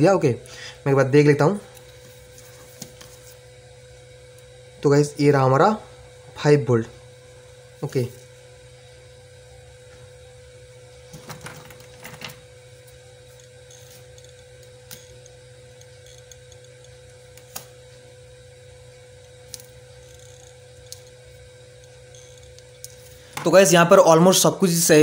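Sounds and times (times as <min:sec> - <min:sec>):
steady electrical hum: 0:00.0 - 0:25.0
wire cutter snipping wire: 0:13.4 - 0:17.8.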